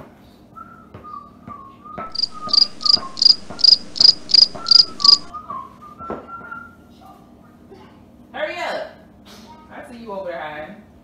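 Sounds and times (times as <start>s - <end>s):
faint whistled tune: 0.2s - 7.7s
cricket chirping: 2.1s - 5.3s.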